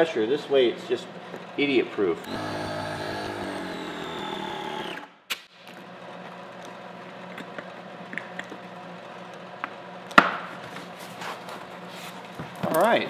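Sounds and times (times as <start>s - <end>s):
electric air compressor running: 2.2s - 5.2s.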